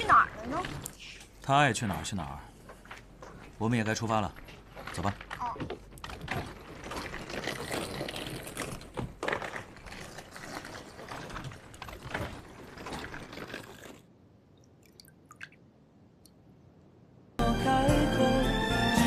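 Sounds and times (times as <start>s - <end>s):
footsteps: 2.4s - 13.6s
suitcase wheels rattling on pavement: 2.7s - 14.1s
faint water drips: 14.5s - 16.5s.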